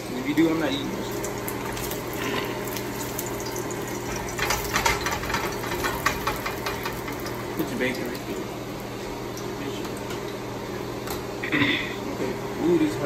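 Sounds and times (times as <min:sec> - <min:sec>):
bacon sizzling in a pan: 0:00.6 - 0:10.6.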